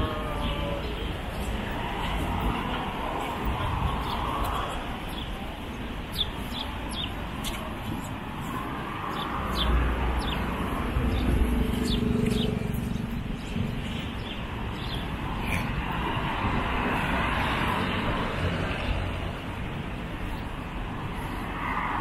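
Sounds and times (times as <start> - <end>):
city street noise: 0.0 - 22.0
small birds chirping: 4.0 - 15.7
motor vehicle passing: 9.4 - 13.4.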